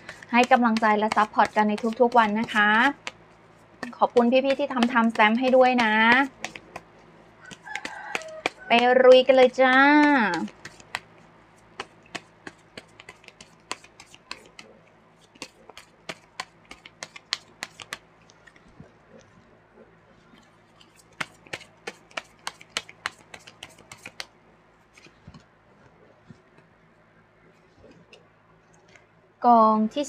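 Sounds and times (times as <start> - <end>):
cards shuffled and dealt: 0.0 - 19.0, 20.6 - 26.7.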